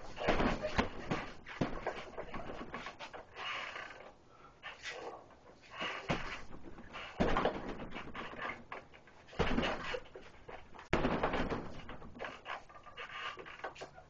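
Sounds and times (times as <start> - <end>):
punches thudding on heavy bag: 0.0 - 2.8, 6.1 - 8.4, 9.3 - 10.1, 10.9 - 12.2
rustling noise: 0.0 - 4.0.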